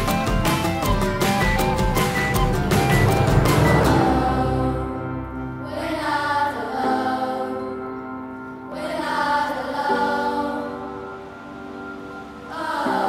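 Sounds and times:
slow held music chords: 2.0 - 6.7.

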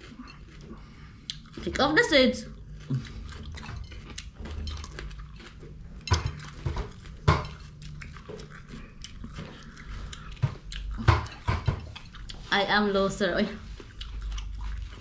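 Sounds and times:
crisp chewing crunches: 2.5 - 11.1, 13.6 - 15.0.

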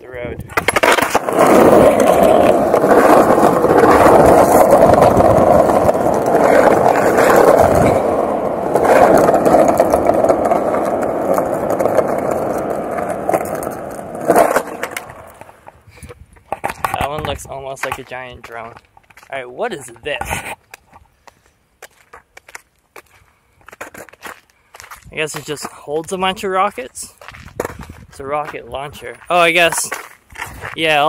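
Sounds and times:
wind buffeting microphone: 0.0 - 18.6, 27.2 - 29.0.

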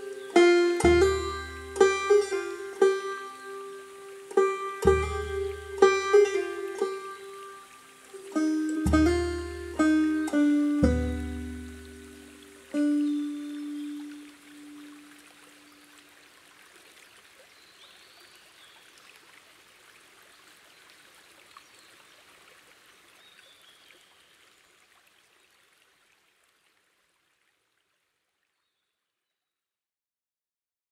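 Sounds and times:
held low note: 0.0 - 15.1
stream trickling: 0.0 - 29.2.

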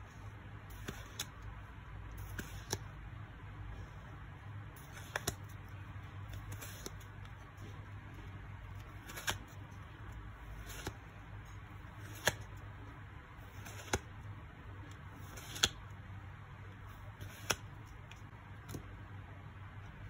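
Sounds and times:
low steady hum: 0.0 - 20.0
cards rustling: 0.1 - 3.0, 3.8 - 19.0
cards snapping clicks: 4.9 - 5.4, 9.0 - 9.5, 12.0 - 12.5, 15.4 - 15.8, 17.2 - 17.7.

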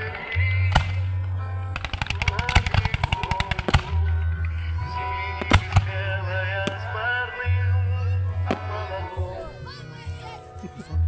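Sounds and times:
fireworks crackling bangs: 0.6 - 4.3, 4.9 - 7.2
fireworks booms: 1.8 - 4.1, 5.3 - 7.1.

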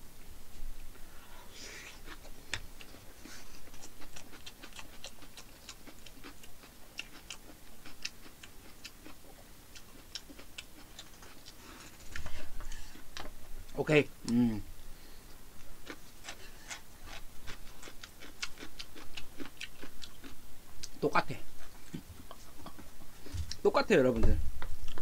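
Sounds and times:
wet chewing mouth clicks: 1.8 - 12.3, 15.8 - 21.0.

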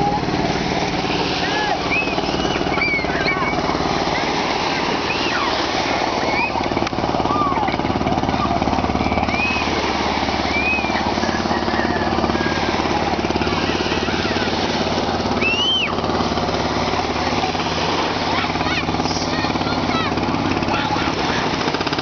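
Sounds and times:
boat engine pulsing: 0.0 - 22.0.

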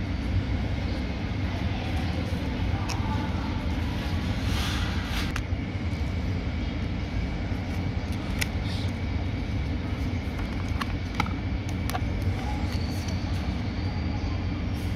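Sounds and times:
steady low rumble: 0.0 - 14.9.

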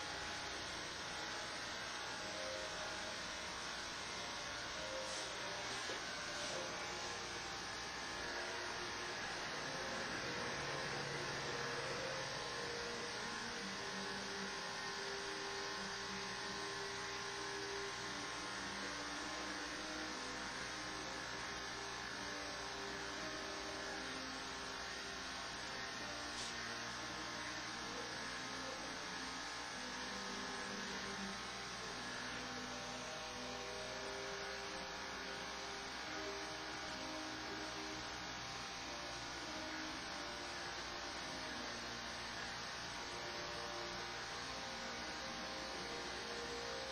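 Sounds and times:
constant hiss: 0.0 - 46.9
electric hair clippers buzzing: 0.0 - 46.9.

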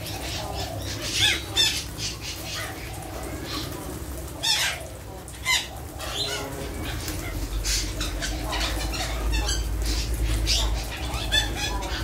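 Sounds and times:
parakeets screeching: 0.0 - 12.0
wings flapping: 2.6 - 8.8.

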